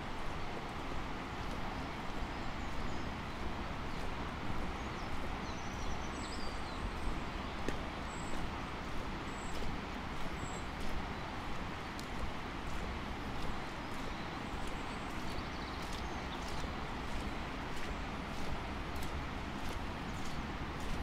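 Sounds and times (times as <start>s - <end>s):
footsteps on tarmac: 7.5s - 21.0s.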